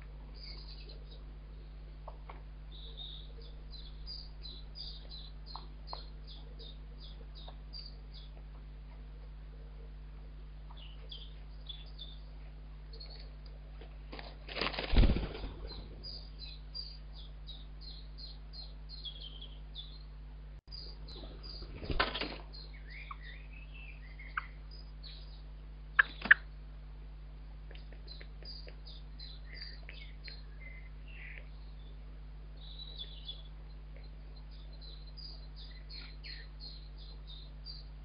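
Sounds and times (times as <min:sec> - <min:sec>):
low electrical hum: 0:00.0 - 0:38.0
wings flapping: 0:14.1 - 0:16.1, 0:21.4 - 0:22.5
high bird chirps: 0:15.1 - 0:20.1, 0:20.7 - 0:26.4, 0:32.6 - 0:37.9.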